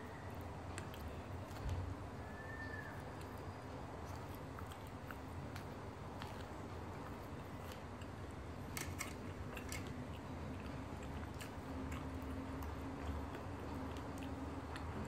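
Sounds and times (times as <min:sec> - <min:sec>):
steady low hum: 0:00.0 - 0:15.0
person chewing: 0:03.0 - 0:15.0.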